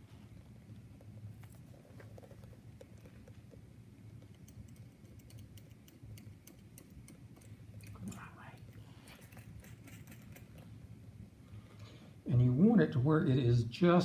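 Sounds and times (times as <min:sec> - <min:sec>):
low steady hum: 0:00.0 - 0:14.0
light metal clicks and ticks: 0:04.2 - 0:08.3.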